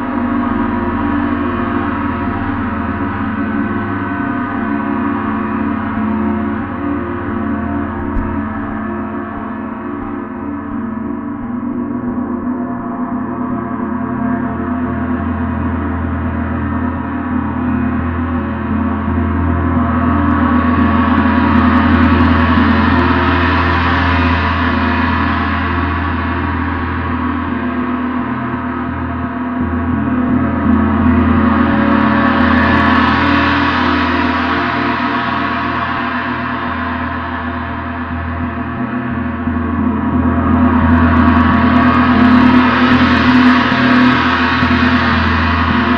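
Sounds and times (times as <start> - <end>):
gong ringing: 4.4 - 15.5.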